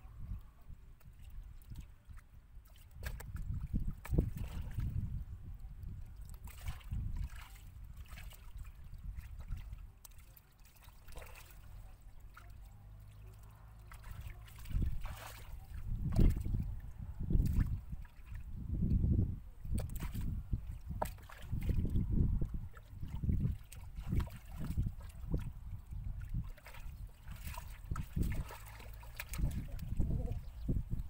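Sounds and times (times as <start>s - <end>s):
hands splashing in muddy water: 6.2s - 18.4s, 19.7s - 30.6s.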